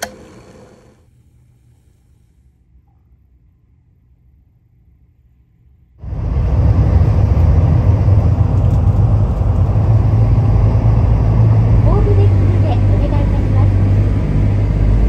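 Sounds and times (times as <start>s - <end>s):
faint low hum: 0.8s - 15.0s
ferry engine droning: 6.0s - 15.0s.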